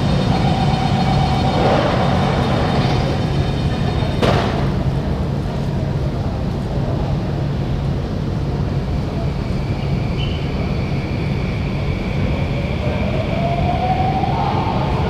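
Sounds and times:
train motor whine rising: 0.0 - 5.1
train rumble and hum: 0.0 - 15.0.

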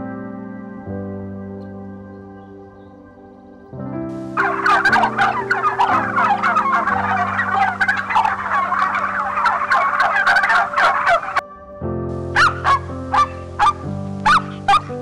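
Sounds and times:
background music: 0.0 - 15.0
birds chattering: 4.4 - 11.4.

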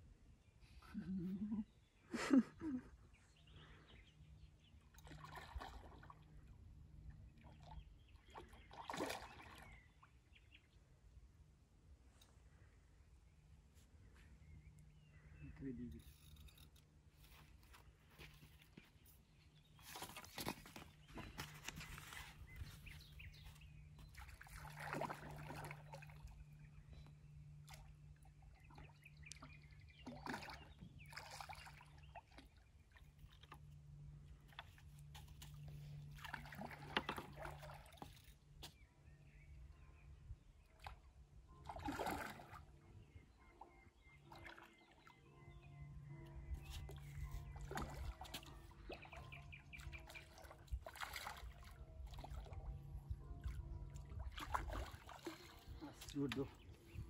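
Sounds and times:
water splashing and sloshing: 4.6 - 10.3, 16.0 - 39.1, 40.5 - 45.3, 46.0 - 57.0.

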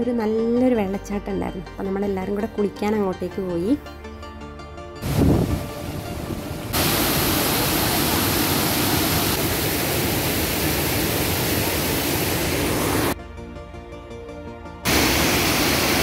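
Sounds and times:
waterfall rushing: 5.0 - 13.2, 14.9 - 16.0.

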